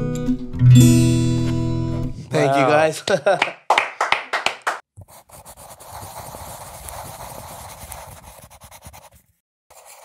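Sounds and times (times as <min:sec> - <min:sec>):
scratchy crackling sound effect: 0:05.0 - 0:10.0.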